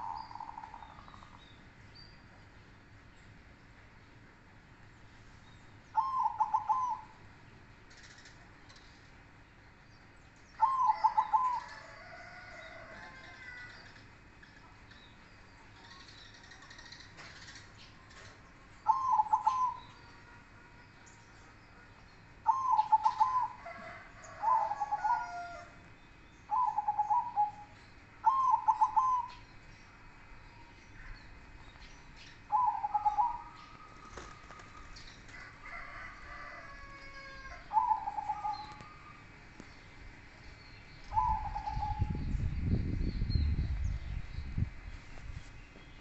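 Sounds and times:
doves cooing: 6.0 - 7.2, 10.6 - 14.0, 16.8 - 20.8, 22.4 - 25.8, 26.5 - 29.4, 32.4 - 40.3, 41.1 - 42.2
small birds chirping: 12.7 - 23.6.

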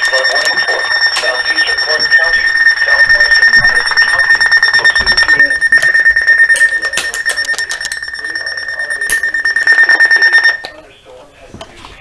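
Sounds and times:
weather radio alarm beeping: 0.0 - 10.8.

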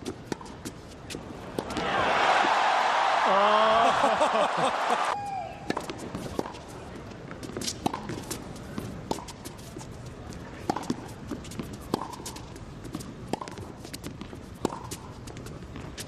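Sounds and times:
low arena hum: 0.1 - 16.0.

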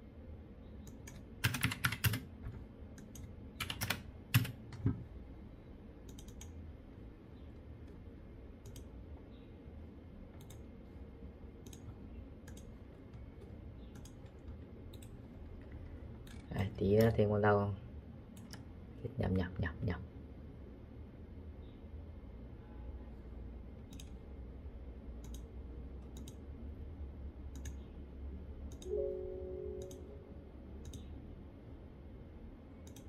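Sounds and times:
computer keyboard typing: 0.9 - 4.8, 6.1 - 6.6, 8.6 - 8.9, 11.6 - 17.1.

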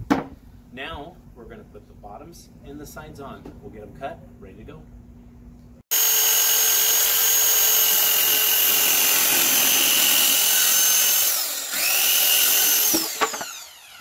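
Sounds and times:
circular saw cutting plywood: 5.9 - 14.0.

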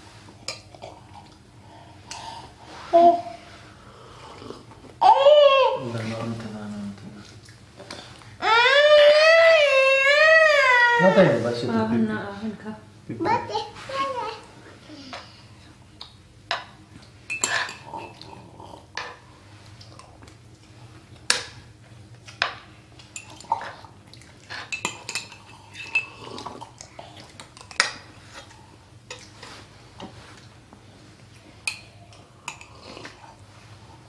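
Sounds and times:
metal spoons clinking on metal pan: 17.3 - 18.2.

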